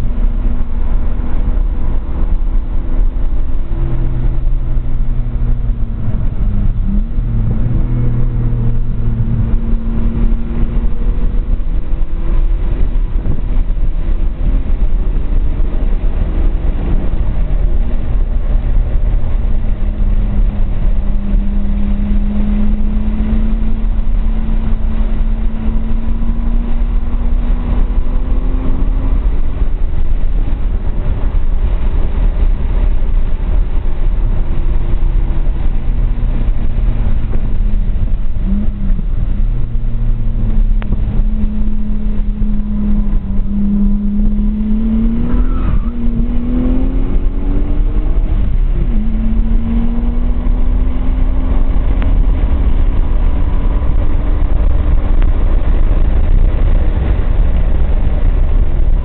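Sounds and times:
car engine revving: 0:00.0 - 0:59.0
heavy low rumble: 0:00.0 - 0:59.0.

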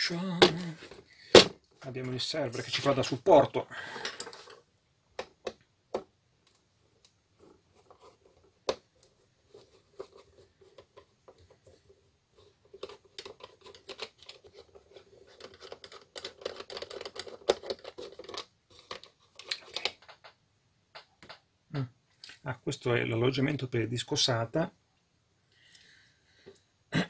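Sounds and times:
scratchy clicking and rubbing: 0:07.4 - 0:20.4.

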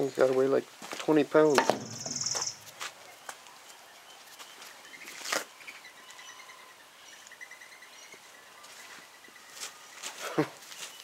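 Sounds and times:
scraping knock: 0:01.5 - 0:02.8.

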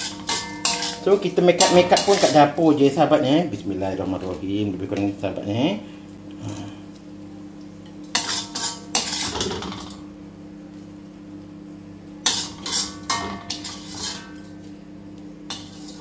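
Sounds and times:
metal ladle scraping a wok: 0:00.0 - 0:02.6, 0:08.2 - 0:09.7, 0:12.3 - 0:14.4, 0:15.5 - 0:16.0.

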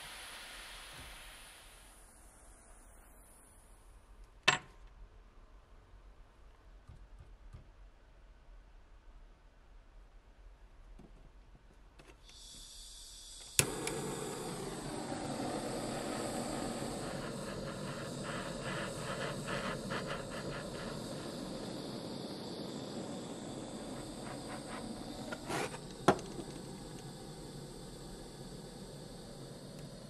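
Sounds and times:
gas hissing from torch: 0:00.0 - 0:04.0, 0:12.2 - 0:30.0
torch flame rushing: 0:12.9 - 0:30.0.

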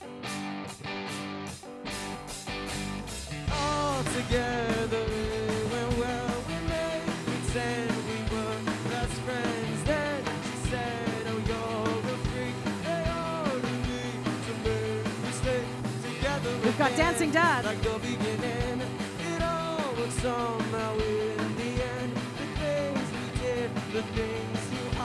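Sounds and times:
pitch-bending guitar melody: 0:00.0 - 0:06.5, 0:16.5 - 0:18.7
live rock band playing: 0:00.0 - 0:25.0.

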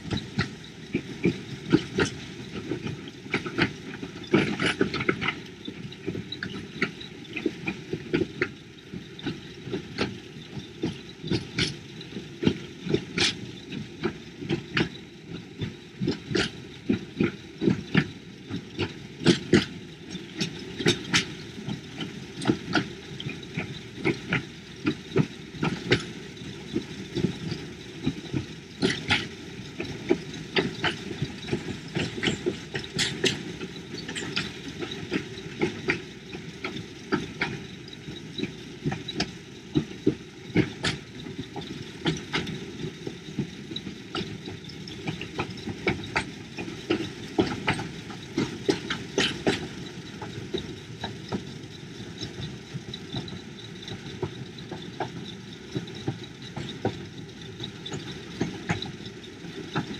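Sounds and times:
train running rumble: 0:00.0 - 0:59.9
wheels clacking on rails: 0:00.0 - 0:59.9.

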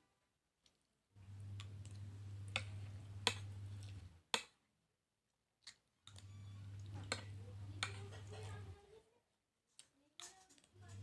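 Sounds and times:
steady low hum: 0:01.2 - 0:04.2
plastic spoon clicking on plate: 0:02.5 - 0:03.5, 0:07.0 - 0:08.5.

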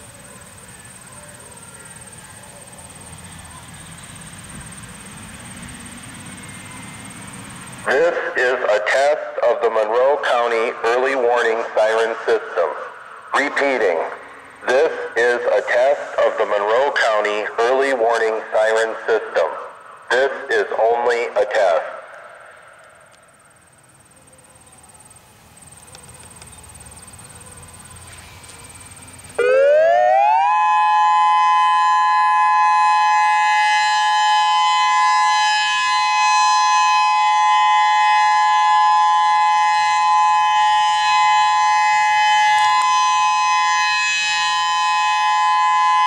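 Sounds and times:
electronic warning siren: 0:00.0 - 0:46.0.

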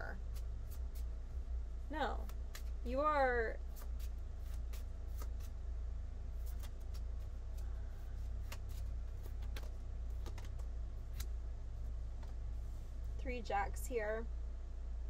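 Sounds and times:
steady low hum: 0:00.0 - 0:15.0
playing cards clicking: 0:02.2 - 0:02.8, 0:03.8 - 0:05.5, 0:06.4 - 0:07.1, 0:08.4 - 0:11.3.

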